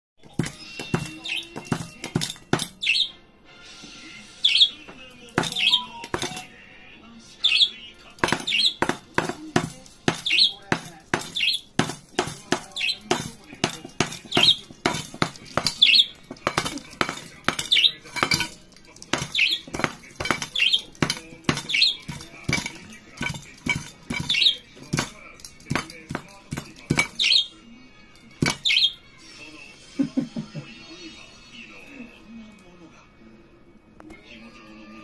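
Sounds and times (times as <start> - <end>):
metal bowl clanking and rattling: 0.2 - 2.8, 5.3 - 6.5, 8.0 - 27.4, 28.1 - 28.8
budgerigar chirping: 2.7 - 3.2, 4.4 - 4.8, 5.4 - 6.4, 7.4 - 9.0, 11.2 - 11.8, 28.5 - 29.0.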